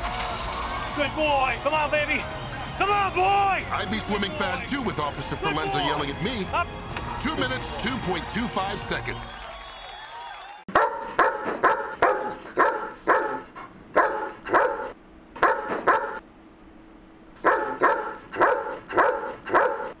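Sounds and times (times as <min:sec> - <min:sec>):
dog barking: 0:10.7 - 0:16.2, 0:17.4 - 0:20.0.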